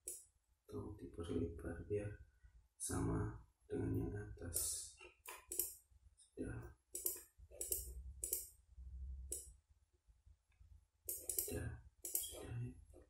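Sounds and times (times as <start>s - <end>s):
computer mouse clicks: 0.0s - 0.2s, 4.5s - 5.8s, 6.9s - 8.5s, 9.3s - 9.5s, 11.1s - 12.6s.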